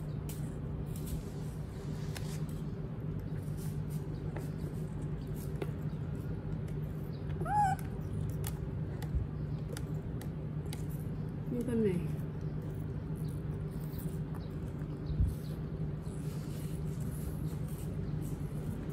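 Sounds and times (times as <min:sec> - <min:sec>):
steady low hum: 0:00.0 - 0:18.9
baby monkey squeaking: 0:07.4 - 0:07.9.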